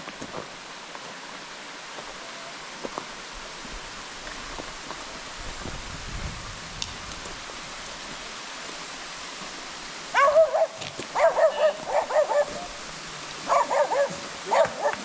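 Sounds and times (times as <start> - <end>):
waterfall rushing: 0.0 - 15.0
small dog yapping: 10.2 - 12.7, 13.5 - 15.0.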